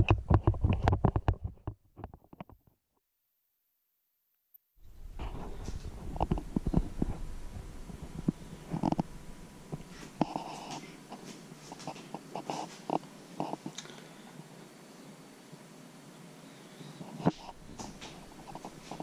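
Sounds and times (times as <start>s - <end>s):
clicks taps and rustles: 0.0s - 2.6s, 17.2s - 19.0s.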